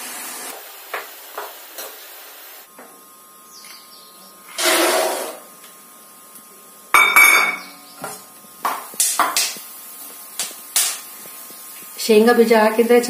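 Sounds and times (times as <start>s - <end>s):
peanuts sizzling in hot oil: 8.6s - 12.6s.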